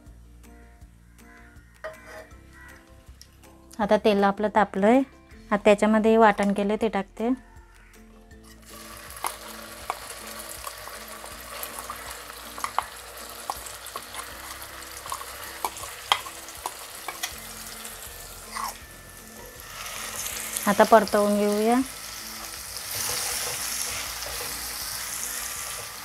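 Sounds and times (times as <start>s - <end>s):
hot oil sizzling: 8.5s - 26.0s
oil popping: 8.6s - 17.4s
paste scraped into pan: 18.4s - 18.8s.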